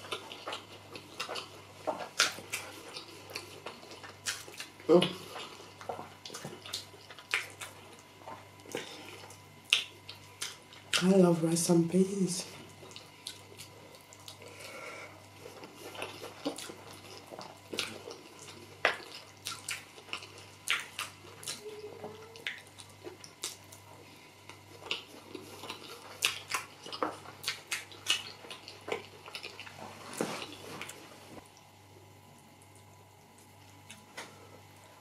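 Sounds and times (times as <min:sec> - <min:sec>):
wet chewing and lip smacking: 0:00.0 - 0:11.1, 0:12.7 - 0:14.7, 0:15.3 - 0:31.7
faint low hum: 0:00.0 - 0:35.0.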